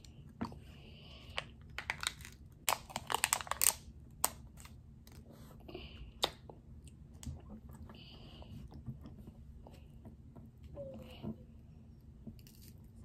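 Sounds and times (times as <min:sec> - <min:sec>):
plastic packaging clicks: 0:01.8 - 0:04.7
plastic crinkling and tearing: 0:01.8 - 0:05.2.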